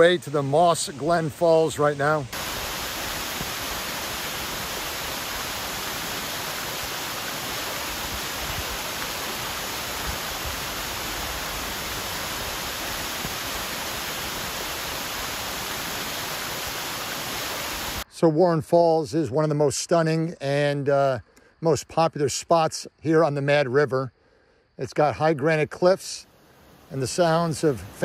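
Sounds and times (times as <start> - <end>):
waterfall pouring over rock: 2.3 - 18.0, 26.5 - 28.0.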